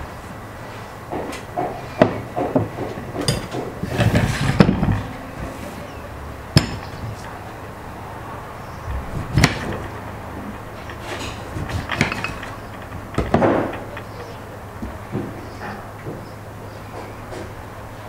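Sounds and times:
glass dishes knocking on table: 0:06.6 - 0:07.0, 0:10.8 - 0:14.4.

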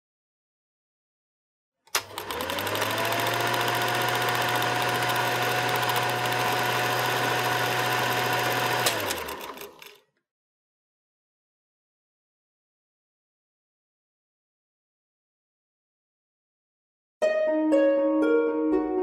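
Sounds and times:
click: 0:01.9 - 0:02.2.

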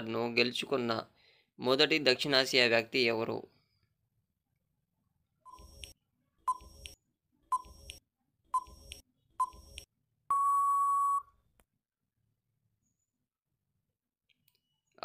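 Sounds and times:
short countdown beeps: 0:10.3 - 0:11.3
long steady beep: 0:10.3 - 0:11.4.

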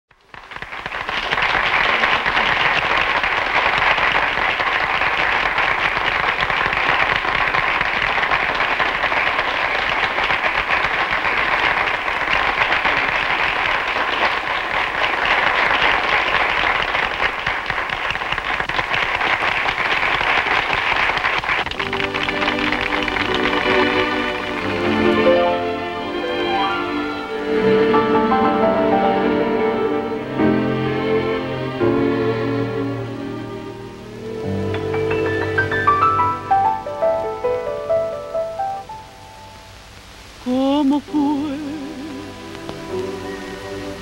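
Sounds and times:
audience applauding: 0:00.1 - 0:39.0
music: 0:21.8 - 0:39.9, 0:40.5 - 0:44.0.

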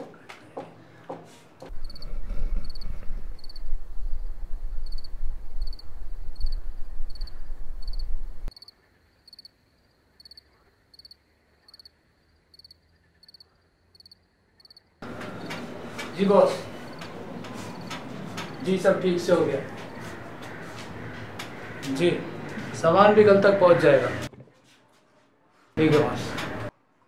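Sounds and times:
loud low rumble: 0:01.7 - 0:08.5
cricket chirping: 0:01.7 - 0:15.6.

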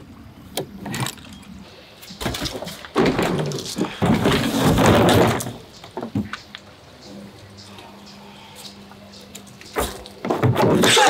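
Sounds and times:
stiff plastic hull rustling: 0:02.1 - 0:06.6.

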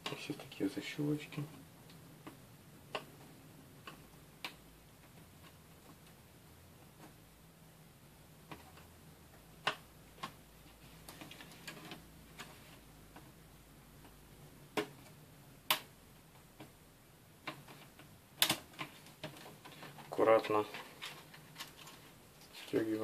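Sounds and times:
plastic latches clicking and snapping: 0:17.4 - 0:19.8.

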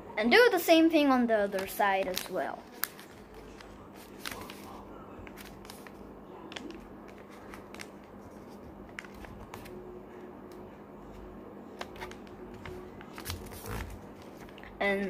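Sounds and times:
faint steady hum: 0:00.0 - 0:15.0
paper being folded and creased: 0:01.5 - 0:09.8, 0:11.8 - 0:14.6.

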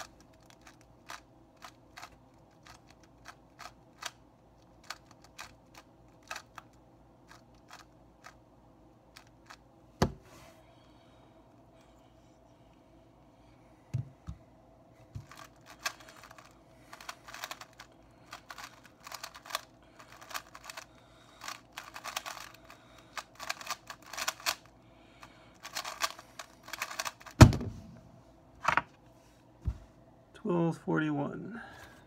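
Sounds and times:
puzzle cube plastic clicks: 0:00.0 - 0:08.4, 0:15.2 - 0:24.7, 0:25.6 - 0:27.4.

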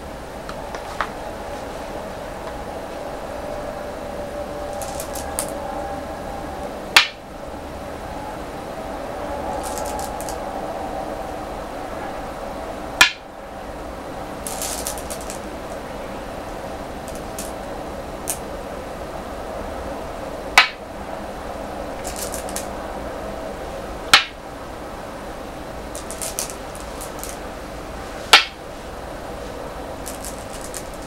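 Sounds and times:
steady low hum: 0:00.0 - 0:31.0
stones clicking in a bowl: 0:04.7 - 0:05.6, 0:09.6 - 0:10.4, 0:14.5 - 0:15.8, 0:17.0 - 0:17.6, 0:22.0 - 0:22.7, 0:25.9 - 0:27.4, 0:30.0 - 0:31.0
stones clacking on wooden board: 0:04.8 - 0:05.6, 0:09.6 - 0:10.4, 0:14.5 - 0:15.4, 0:17.0 - 0:17.6, 0:22.0 - 0:22.7, 0:25.9 - 0:27.4, 0:30.0 - 0:31.0.

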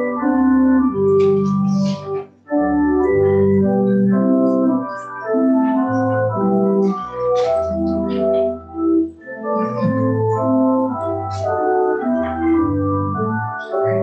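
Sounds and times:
church organ playing chords: 0:00.0 - 0:14.0.

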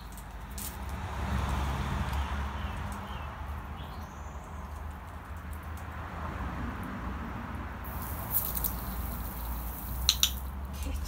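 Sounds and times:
hose nozzle spraying water: 0:07.8 - 0:10.6.

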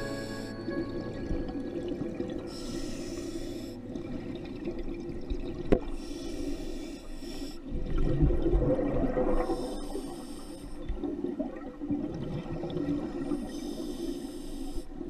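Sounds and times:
regulator hissing inhalation: 0:00.0 - 0:00.7, 0:02.5 - 0:03.8, 0:06.0 - 0:07.6, 0:09.5 - 0:10.8, 0:13.4 - 0:14.9
rumbling exhaled bubbles: 0:07.7 - 0:09.6.

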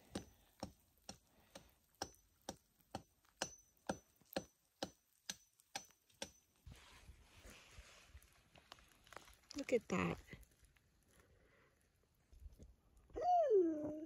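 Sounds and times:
sharp ticking with faint ping: 0:02.0 - 0:06.4.

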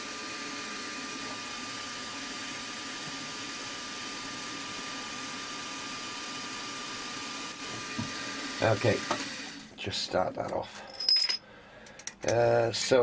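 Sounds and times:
milling machine spindle whine: 0:00.0 - 0:09.6.

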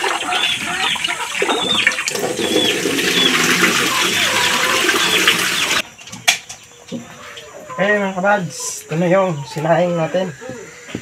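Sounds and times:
water splashing into steel sink: 0:01.0 - 0:05.8.

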